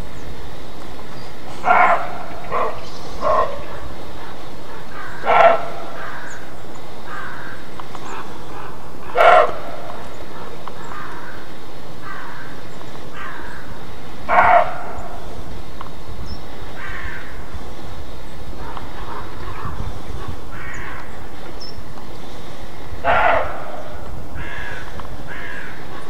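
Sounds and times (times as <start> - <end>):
deer alarm barks: 1.5 - 6.4, 9.0 - 11.2, 14.3 - 15.4, 23.0 - 24.8
faint deer barks: 1.5 - 6.5, 7.1 - 15.5, 18.5 - 21.1, 22.9 - 26.0.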